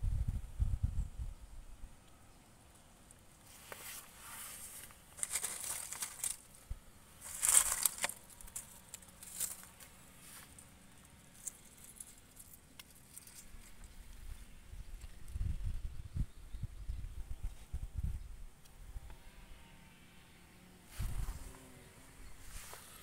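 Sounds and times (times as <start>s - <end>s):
dry rustling and crinkling: 3.4s - 15.4s.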